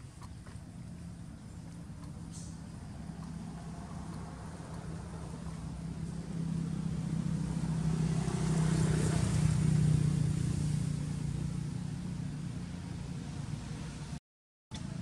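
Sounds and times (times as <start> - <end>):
vehicle passing on road: 0.0 - 14.2.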